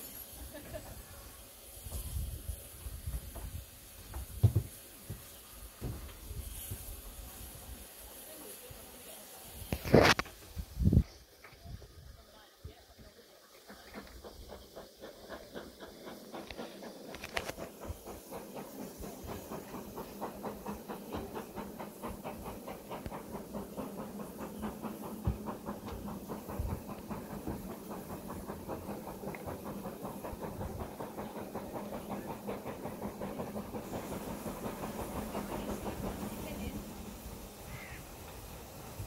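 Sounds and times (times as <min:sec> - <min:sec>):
hiss of steam: 0:00.0 - 0:39.0
rumble of train wheels: 0:00.0 - 0:39.0
steam engine beat: 0:12.9 - 0:39.0.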